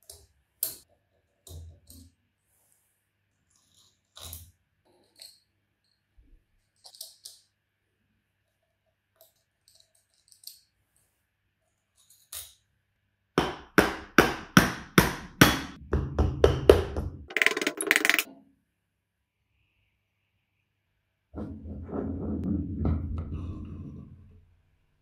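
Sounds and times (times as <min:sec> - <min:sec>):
screwdriver and screws clicking: 0:17.3 - 0:18.3.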